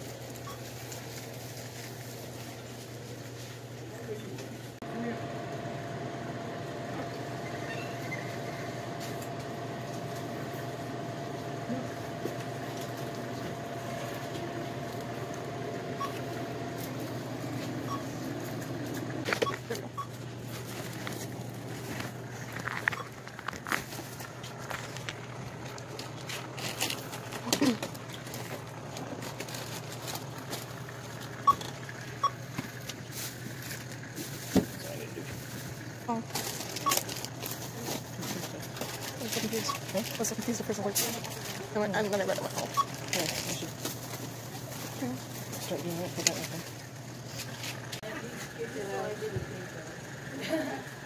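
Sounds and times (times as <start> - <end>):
steady low hum: 0.0 - 51.0
checkout scanner beeps: 0.4 - 0.6, 15.8 - 16.6, 17.4 - 18.4, 19.2 - 20.2, 22.8 - 23.2, 31.4 - 32.4, 36.8 - 37.1, 39.4 - 39.9, 42.5 - 43.6.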